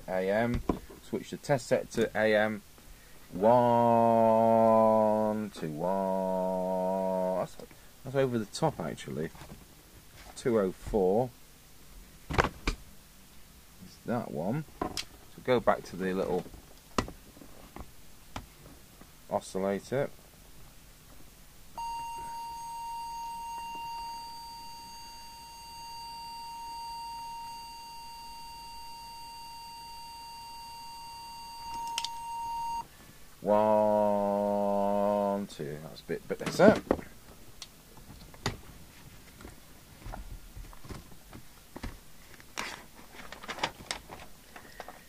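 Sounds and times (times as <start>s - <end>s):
high test tone: 21.8s - 32.8s
paper pages rustling: 42.4s - 44.6s
sharp paper crackles: 42.6s - 44.3s.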